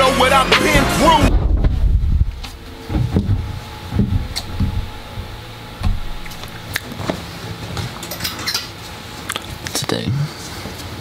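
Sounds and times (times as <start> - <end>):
dull low thuds: 0.8 - 7.1.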